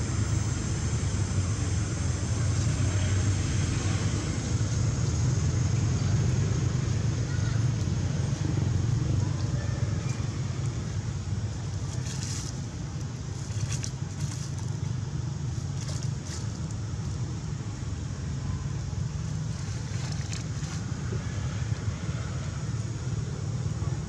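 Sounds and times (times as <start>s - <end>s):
steady low rumble: 0.0s - 24.0s
dry leaves crackling: 9.1s - 16.9s.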